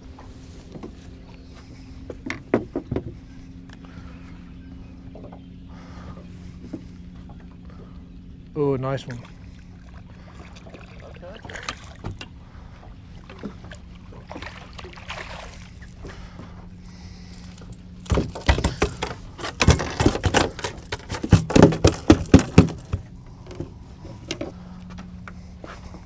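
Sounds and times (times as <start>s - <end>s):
light water: 3.2s - 22.1s
fish slapping on boat deck: 13.3s - 16.2s, 17.3s - 23.1s.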